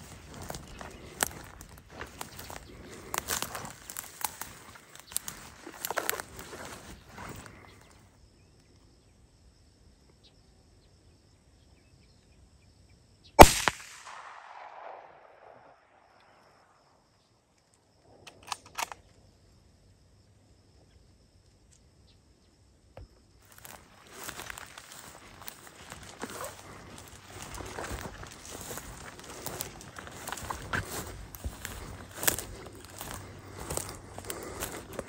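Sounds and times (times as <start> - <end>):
rifle shot with rolling echo: 13.4 - 16.4.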